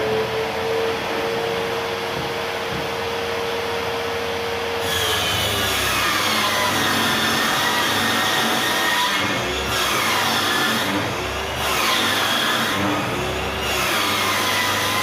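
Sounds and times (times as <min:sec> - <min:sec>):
table saw cutting board: 0:04.8 - 0:15.0.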